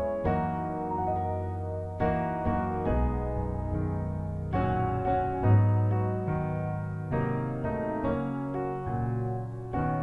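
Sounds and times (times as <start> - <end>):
slow piano chords: 0.0 - 10.0.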